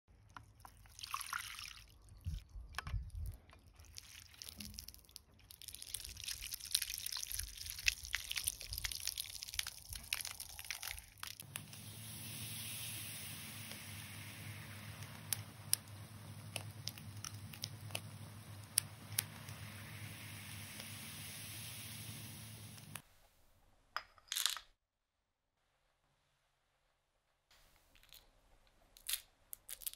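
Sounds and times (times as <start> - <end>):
water beads squashed in juicer: 0.2 - 21.3
fire hissing and popping: 4.3 - 23.0.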